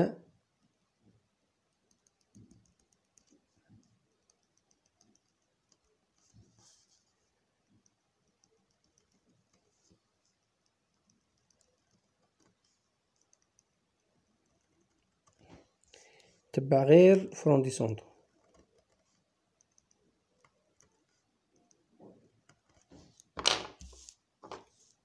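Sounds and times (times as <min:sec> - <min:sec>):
pen scratching on paper: 0:02.5 - 0:13.7.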